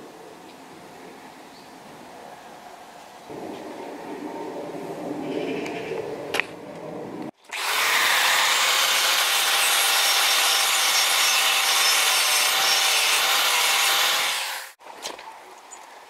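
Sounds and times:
angle grinder grinding steel: 7.5 - 14.8.

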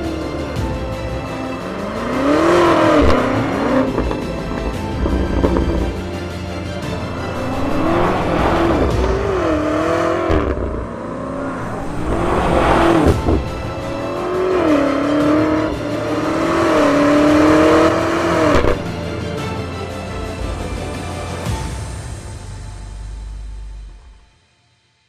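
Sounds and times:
car engine revving: 0.0 - 19.6
background music: 0.0 - 25.0.

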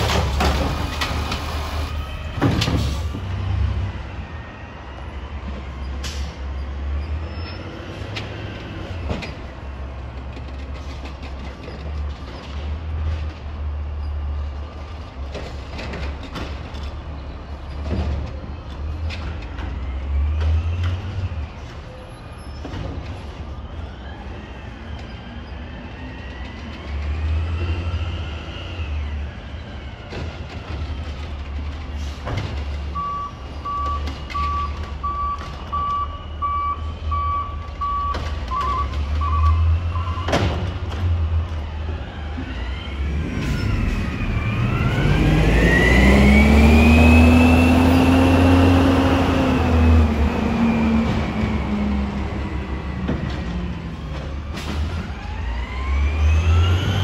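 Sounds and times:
garbage truck diesel engine: 0.0 - 57.0
reverse alarm beeping: 33.0 - 40.4
engine whine: 33.7 - 57.0.

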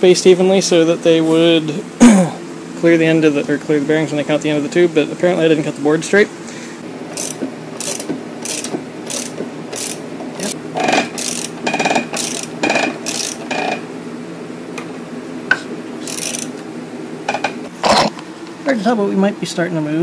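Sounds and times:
socket ratchet clicking: 7.2 - 10.0, 11.2 - 13.8, 16.1 - 16.5.

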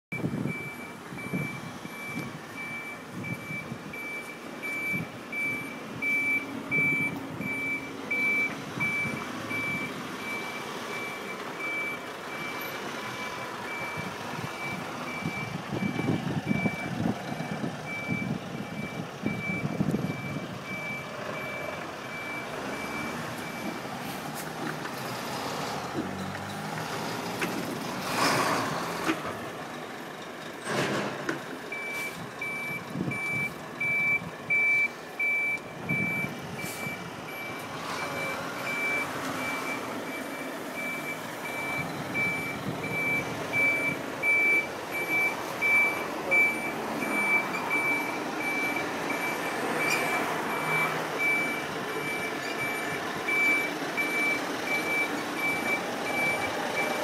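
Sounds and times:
reversing alarm beeps: 0.1 - 23.7, 31.7 - 57.0
lorry diesel engine: 0.1 - 57.0
air brake hiss: 36.6 - 36.9.

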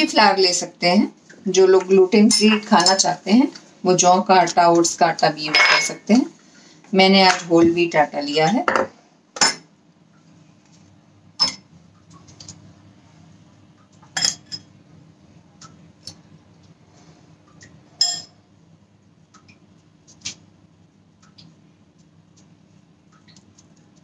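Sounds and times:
faint steady hum: 0.0 - 24.0
metal spoon clinking on glass bowl: 5.4 - 6.0.

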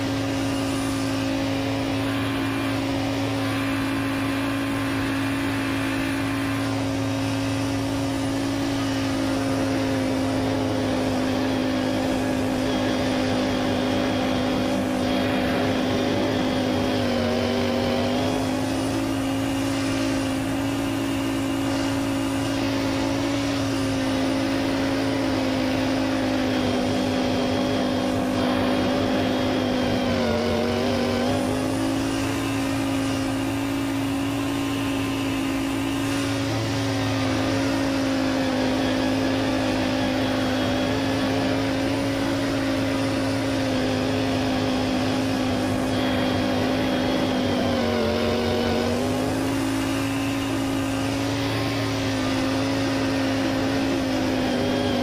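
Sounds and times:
lawn tractor engine running: 0.0 - 55.0.

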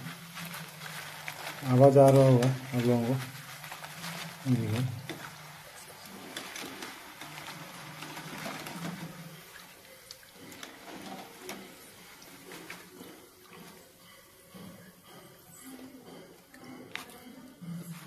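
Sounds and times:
strainer clicking and rattling: 0.0 - 13.8
oil sizzling and crackling: 0.0 - 15.5.

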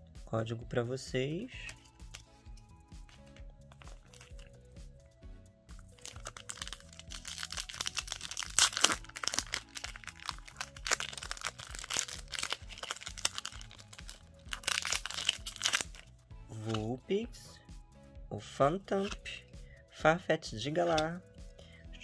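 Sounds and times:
background music: 0.0 - 22.0
foil wrapper crinkling: 3.8 - 4.5, 6.0 - 16.1.

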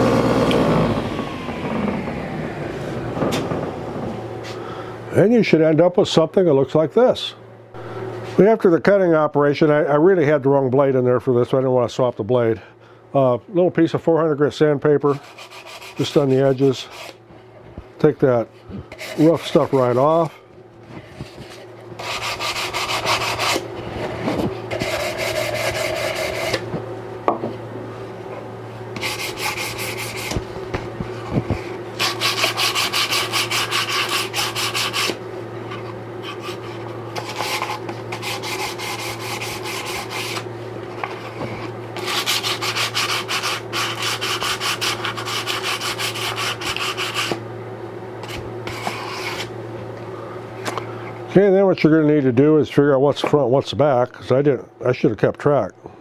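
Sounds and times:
steady low hum: 0.0 - 56.0
sandpaper rubbing wood: 15.1 - 17.2, 18.9 - 20.3, 21.2 - 23.6, 24.7 - 26.6, 29.0 - 30.5, 31.5 - 35.2, 36.2 - 40.4, 41.0 - 47.4, 48.2 - 49.5.

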